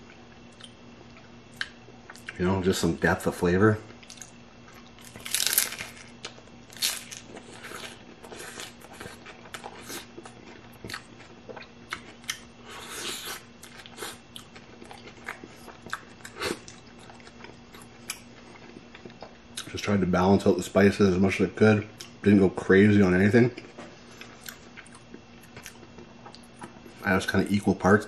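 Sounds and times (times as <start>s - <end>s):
chewing crunches: 3.9s - 19.8s, 23.5s - 27.0s
crunchy taco shell bite: 4.0s - 11.2s.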